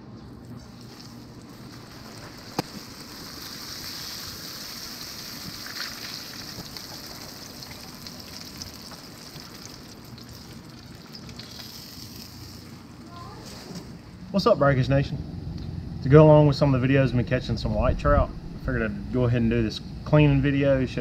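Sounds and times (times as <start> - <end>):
fish frying in hot oil: 0.6 - 13.0.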